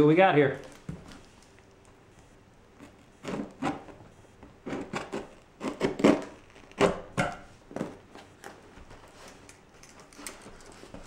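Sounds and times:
scissors cutting packing tape: 0:04.6 - 0:07.1.

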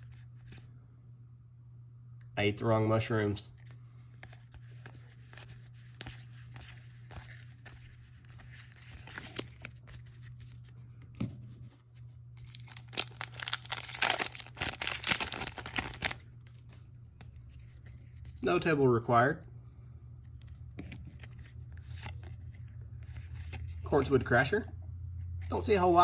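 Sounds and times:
low steady hum: 0:00.0 - 0:26.0
foil wrapper tearing and crinkling: 0:12.4 - 0:16.6.

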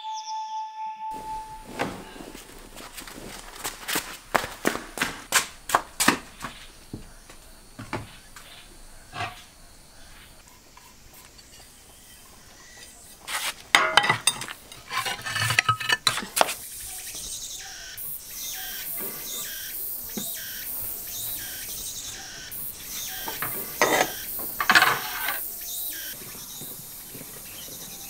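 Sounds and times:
dried pieces clattering into pot: 0:09.1 - 0:09.5, 0:13.7 - 0:16.6, 0:22.9 - 0:25.6.

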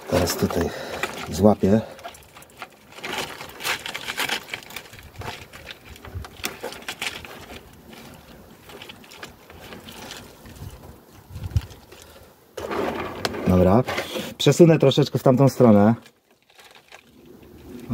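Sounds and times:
fingers scratching gritty soil: 0:00.1 - 0:14.4.

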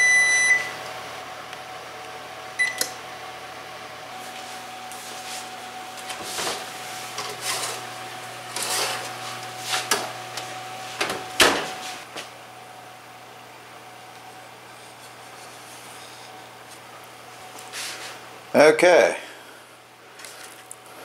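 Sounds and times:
metal tray clanking and scraping: 0:07.2 - 0:07.8, 0:08.5 - 0:09.1
oven door opening: 0:08.5 - 0:12.0.

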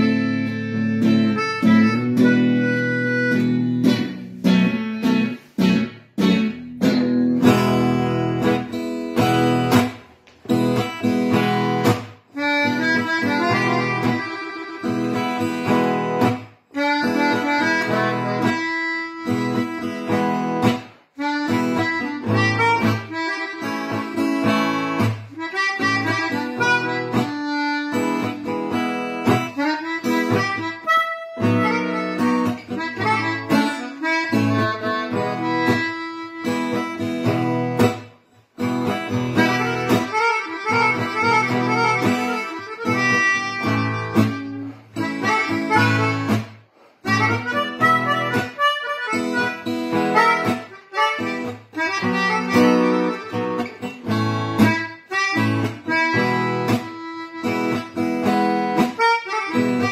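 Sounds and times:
harmonica melody: 0:00.0 - 0:59.9
strummed acoustic guitar: 0:00.0 - 0:59.9.

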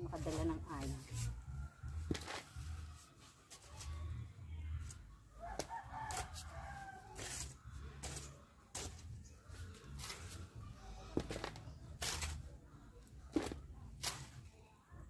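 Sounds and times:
rooster crowing: 0:05.4 - 0:07.4
shovel digging into hard soil: 0:07.2 - 0:09.0, 0:12.0 - 0:12.5, 0:13.3 - 0:14.5.

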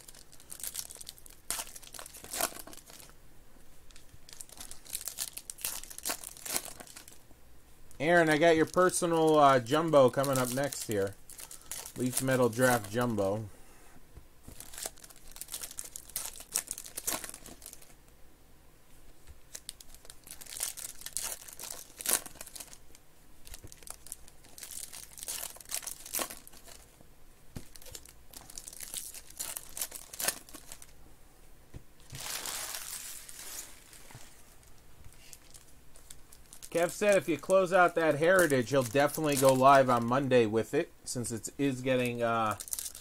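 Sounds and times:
wrappers crinkling and tearing: 0:00.0 - 0:03.1, 0:03.9 - 0:07.2, 0:08.0 - 0:13.3, 0:14.5 - 0:18.0, 0:19.5 - 0:27.0, 0:27.6 - 0:30.9, 0:32.0 - 0:40.2, 0:41.8 - 0:43.0.

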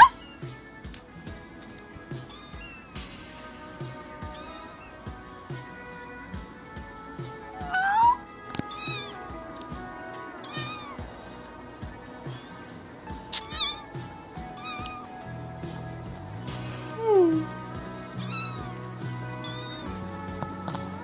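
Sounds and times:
kitten meowing: 0:00.0 - 0:00.4, 0:02.2 - 0:03.0, 0:04.2 - 0:05.0, 0:07.6 - 0:09.2, 0:10.4 - 0:11.1, 0:12.2 - 0:12.7, 0:13.3 - 0:15.2, 0:17.0 - 0:20.0
background music with beat: 0:00.0 - 0:21.0.

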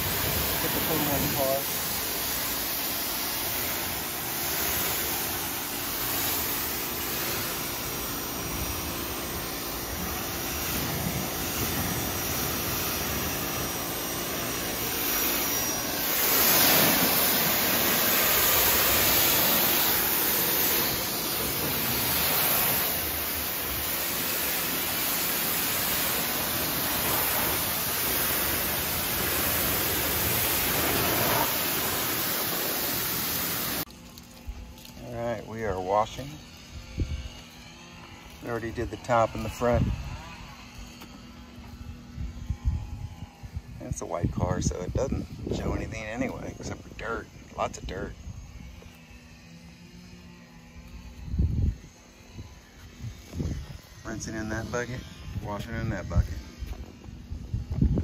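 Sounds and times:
pressure washer spraying water: 0:00.0 - 0:36.8.

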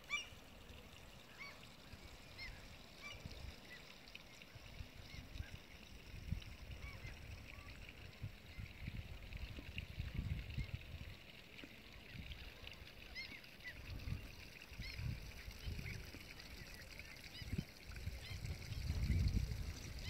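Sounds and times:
faint high bird calls: 0:00.0 - 0:00.4
wind buffeting microphone: 0:06.0 - 0:11.2, 0:13.8 - 0:20.0.

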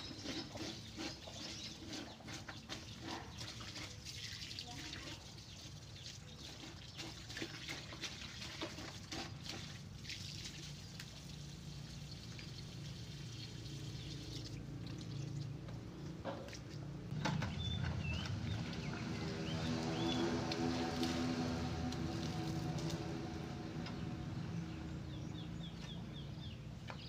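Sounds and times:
hose water pouring into bucket: 0:00.0 - 0:15.3, 0:18.2 - 0:23.6.

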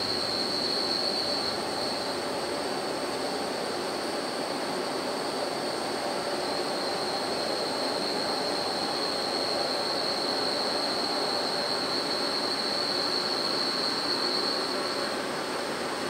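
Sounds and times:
high-pitched whine: 0:00.0 - 0:03.6.

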